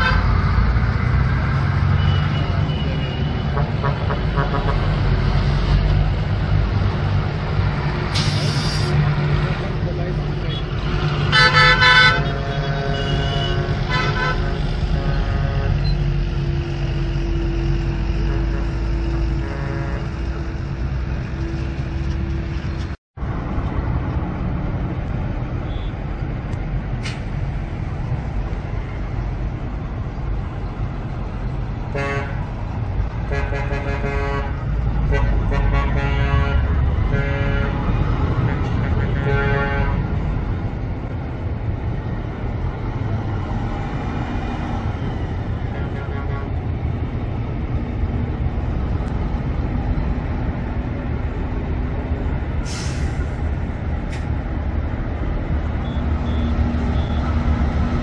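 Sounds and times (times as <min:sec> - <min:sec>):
bus and truck engines: 0:00.0 - 0:58.0
road traffic rumbling: 0:00.0 - 0:58.0
vehicle horn tooting: 0:11.3 - 0:16.0, 0:19.4 - 0:20.4.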